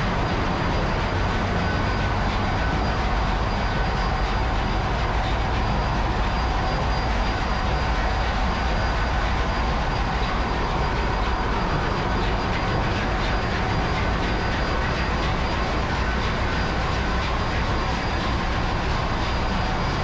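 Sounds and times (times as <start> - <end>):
diesel engine low rumble: 0.0 - 20.0.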